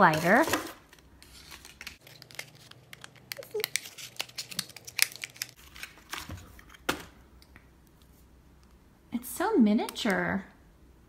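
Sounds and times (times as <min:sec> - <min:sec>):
cardboard packaging crinkling and tearing: 0:00.0 - 0:06.6.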